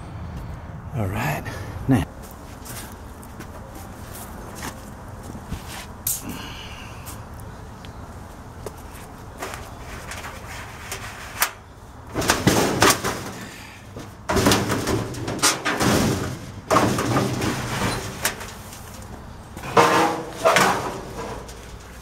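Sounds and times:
metal drum scraping and knocking: 0:09.4 - 0:19.0, 0:19.6 - 0:22.0.

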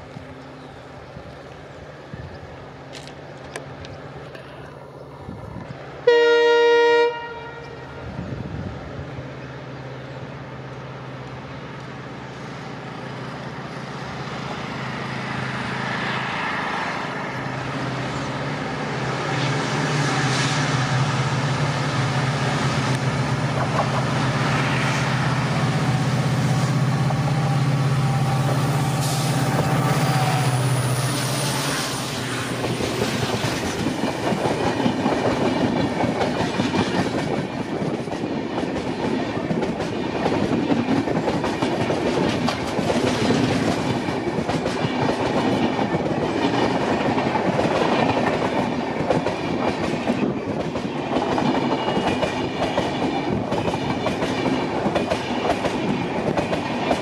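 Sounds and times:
locomotive horn blast: 0:06.0 - 0:08.1
locomotive engine passing: 0:07.6 - 0:57.0.

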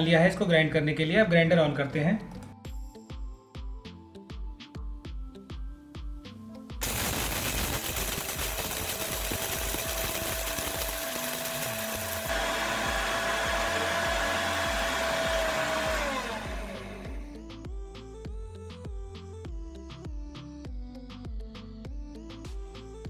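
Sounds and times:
spice rattling in grinder jar: 0:06.8 - 0:12.2
mixer grinder motor whine: 0:06.8 - 0:17.4.

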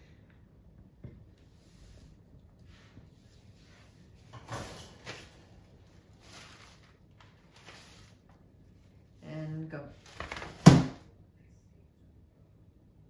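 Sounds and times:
faint rustling and scraping: 0:01.2 - 0:09.2
umbrella fabric swishing: 0:01.6 - 0:08.3.

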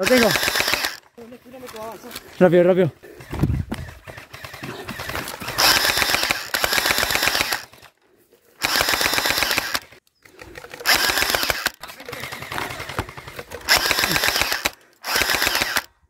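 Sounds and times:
gel blaster firing full auto: 0:00.0 - 0:01.0, 0:03.2 - 0:07.8, 0:08.6 - 0:10.0, 0:10.7 - 0:15.9.

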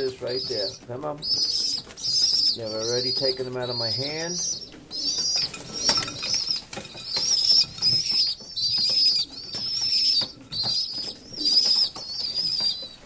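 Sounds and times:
young pigeons squeaking: 0:00.0 - 0:13.0.

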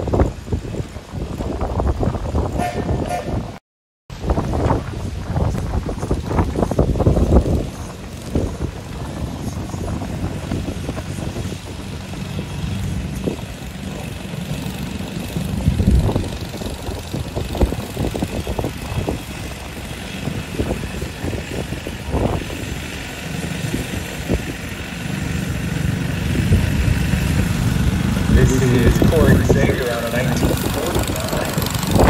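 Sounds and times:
tractor engine running: 0:04.2 - 0:32.0.

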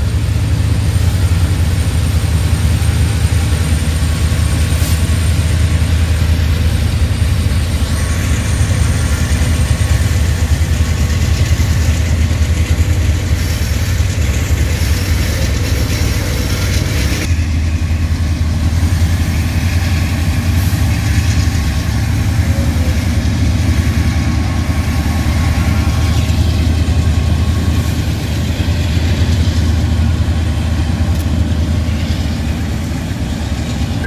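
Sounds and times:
locomotive engine rumble: 0:00.0 - 0:34.0.

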